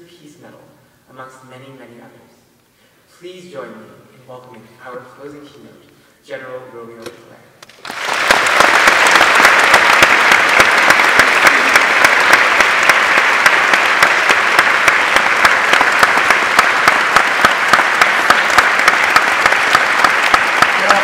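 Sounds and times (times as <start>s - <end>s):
large audience applauding: 7.6s - 21.0s.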